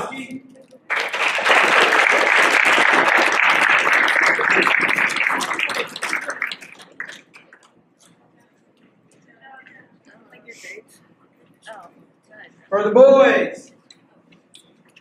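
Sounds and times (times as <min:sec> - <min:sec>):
audience applause: 0:00.9 - 0:07.6.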